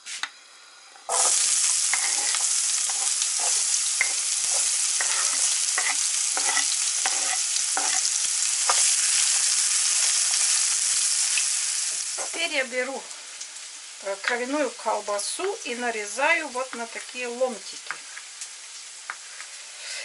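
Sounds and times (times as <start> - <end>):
onion sizzling in oil: 0.0 - 20.0
spatula scraping and tapping: 1.1 - 8.1.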